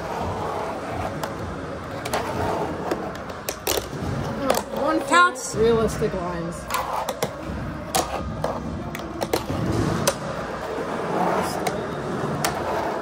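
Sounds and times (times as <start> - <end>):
skateboard wheels rolling: 0.0 - 5.1, 6.6 - 13.0
skateboard clacking on ground: 1.0 - 5.1, 6.7 - 13.0.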